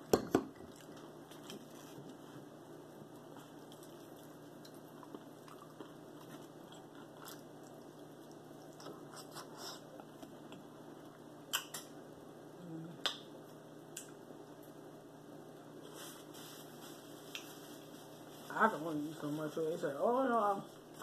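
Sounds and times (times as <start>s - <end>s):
chewing with wet mouth noises: 0.6s - 1.8s, 3.2s - 11.9s.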